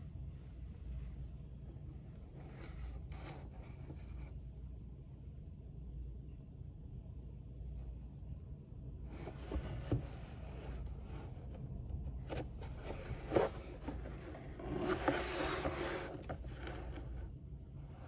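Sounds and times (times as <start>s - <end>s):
cardboard scraping and rubbing: 2.4s - 4.4s, 9.1s - 11.5s, 12.1s - 17.3s.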